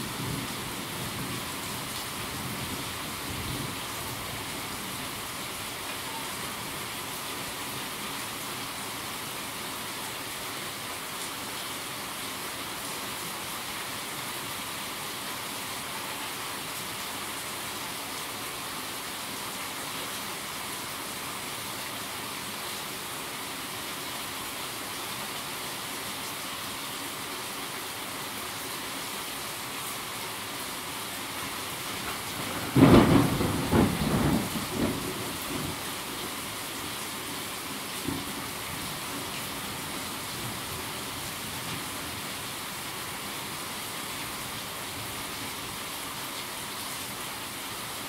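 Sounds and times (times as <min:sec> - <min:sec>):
steady rain falling: 0:00.0 - 0:48.0
rolling thunderclap: 0:32.4 - 0:35.8.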